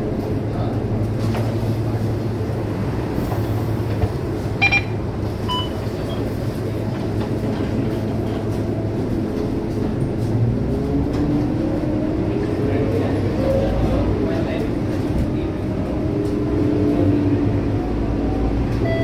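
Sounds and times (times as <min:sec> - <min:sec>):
bus engine hum: 0:00.0 - 0:19.0
road and cabin rumble: 0:00.0 - 0:19.0
short electronic beeps: 0:04.6 - 0:05.8.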